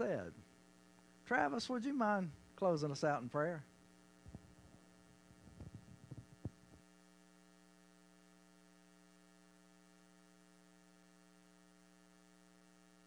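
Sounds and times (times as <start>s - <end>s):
steady electrical hum: 0.0s - 13.0s
microphone handling knocks and rubs: 4.2s - 6.8s.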